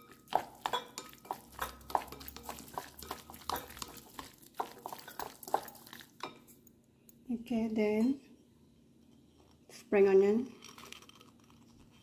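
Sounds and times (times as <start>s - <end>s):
chopsticks clinking on glass bowl: 0.0s - 6.4s.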